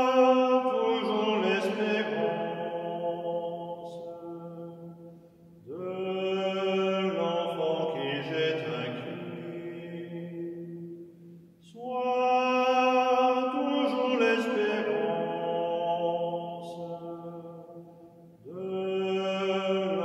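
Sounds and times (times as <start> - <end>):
man singing slow folk melody: 0.0 - 4.5, 5.7 - 10.6, 11.6 - 17.2.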